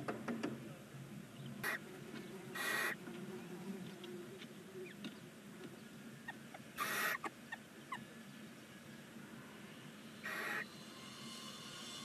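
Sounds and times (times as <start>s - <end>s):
owls hissing: 1.6s - 1.9s, 2.5s - 3.0s, 6.2s - 8.0s, 10.2s - 11.6s.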